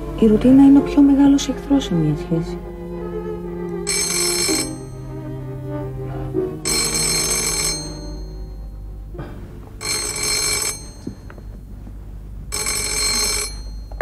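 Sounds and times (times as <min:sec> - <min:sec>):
telephone ringing: 0:03.9 - 0:05.0, 0:06.6 - 0:08.8, 0:09.8 - 0:11.8, 0:12.5 - 0:14.0.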